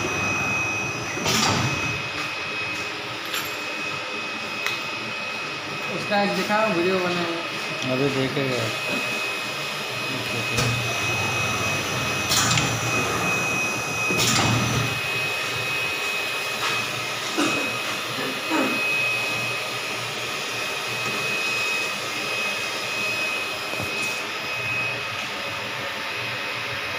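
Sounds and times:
blower rushing with high whine: 0.0 - 26.9.

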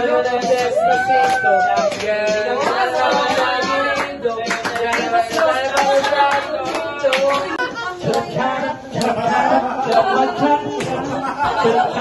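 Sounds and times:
song with singing: 0.0 - 12.0
people clapping along: 0.4 - 9.2, 9.8 - 11.1.

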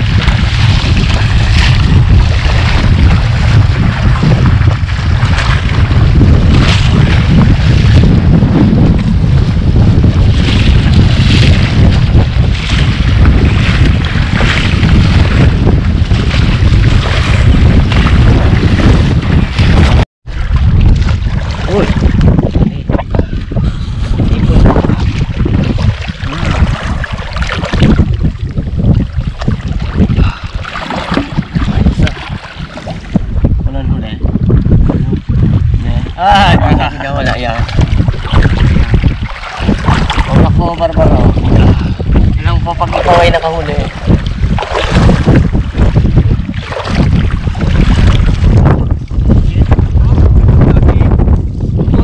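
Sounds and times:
strong wind buffeting microphone: 0.0 - 52.0.

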